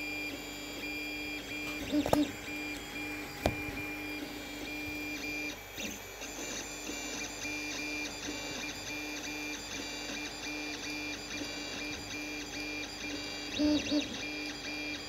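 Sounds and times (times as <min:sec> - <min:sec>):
stepper motors whining: 0:00.0 - 0:09.6
fans whirring: 0:00.0 - 0:15.0.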